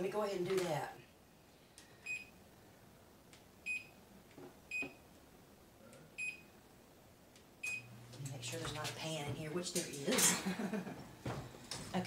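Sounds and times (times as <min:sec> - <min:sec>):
oven control panel beeps: 0:03.7 - 0:04.0.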